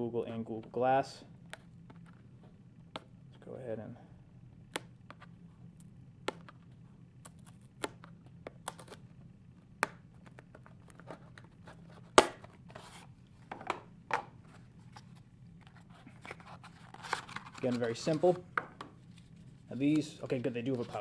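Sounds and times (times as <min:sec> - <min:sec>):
cardboard rubbing: 0:10.4 - 0:13.1, 0:19.1 - 0:21.0.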